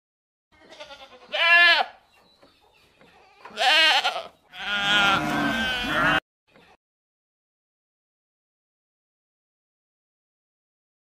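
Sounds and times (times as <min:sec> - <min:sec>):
goat bleating: 0:00.6 - 0:02.0, 0:03.3 - 0:06.2.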